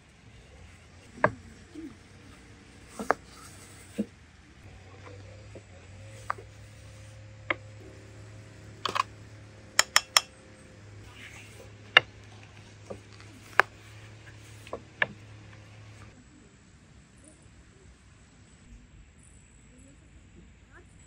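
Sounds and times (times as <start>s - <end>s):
faint low hum: 0.0s - 21.0s
rolling pin on wooden board: 0.6s - 4.1s, 9.8s - 10.3s, 11.0s - 16.1s.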